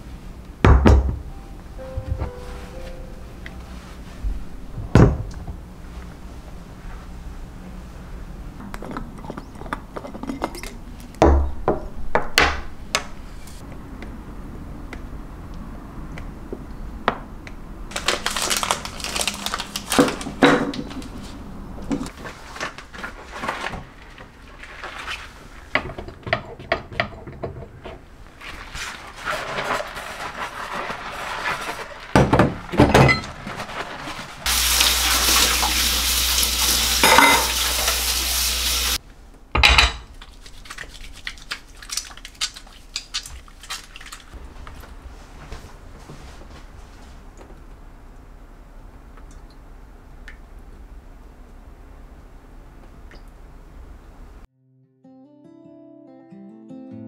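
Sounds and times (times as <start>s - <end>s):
kitchen tap running: 34.5s - 39.0s
dishes clinking on counter: 37.0s - 37.6s, 39.6s - 40.1s.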